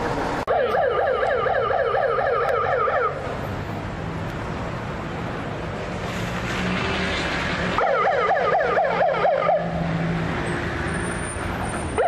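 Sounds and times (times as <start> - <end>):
passing cars: 0.0 - 12.0
siren in a fast yelp: 0.5 - 3.2, 7.8 - 9.7.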